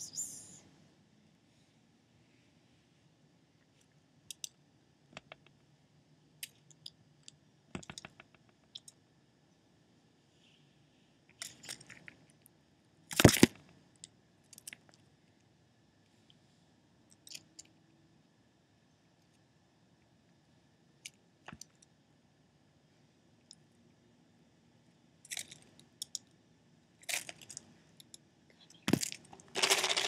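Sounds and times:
rustling: 29.0s - 30.0s.

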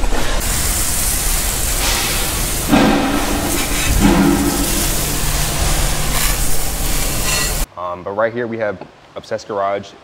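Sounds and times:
hose spray hissing: 0.4s - 7.7s
low hum: 1.5s - 7.6s.

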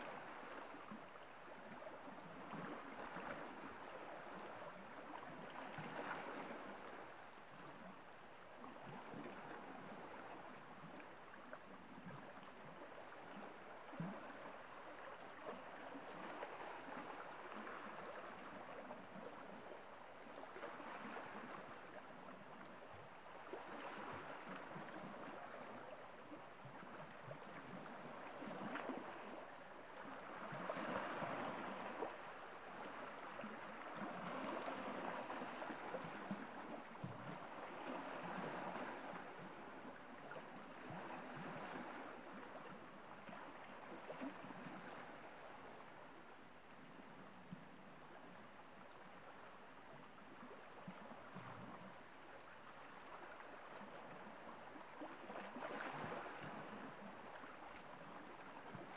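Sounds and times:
waves lapping against rocks: 20.3s - 45.8s, 50.1s - 58.9s
small water splash: 50.2s - 58.9s.

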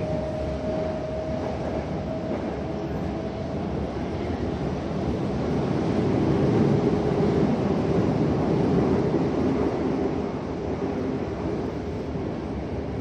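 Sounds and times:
subway car rumbling: 0.0s - 13.0s.

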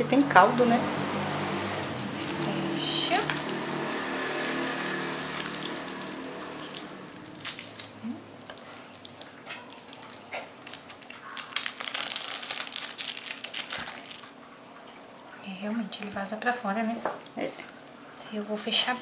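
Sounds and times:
plastic film crinkling: 1.8s - 14.4s.

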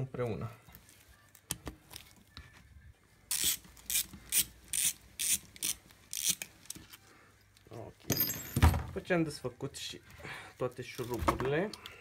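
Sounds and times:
hand ratchet clicking: 3.3s - 6.5s.

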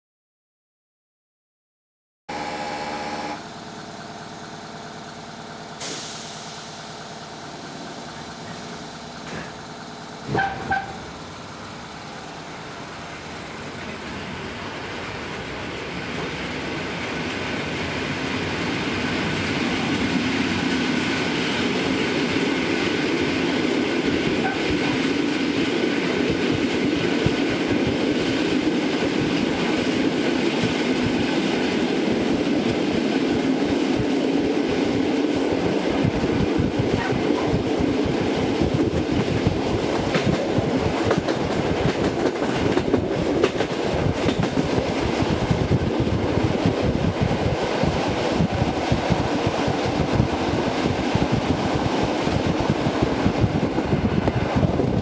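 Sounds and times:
loud high tones: 2.3s - 3.4s
train wheels clattering on rails: 4.0s - 11.3s, 13.5s - 55.0s.

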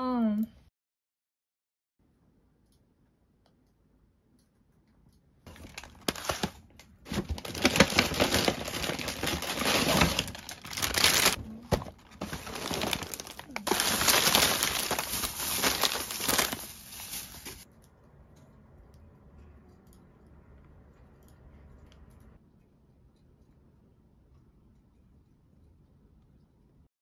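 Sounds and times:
plastic wrappers crinkling: 5.5s - 17.6s.

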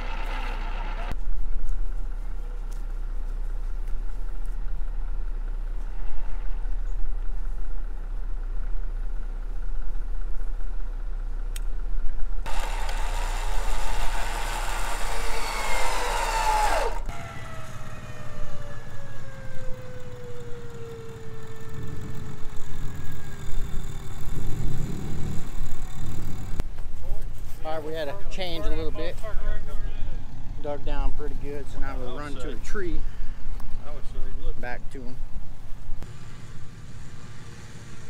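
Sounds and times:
low engine note: 0.0s - 38.0s.

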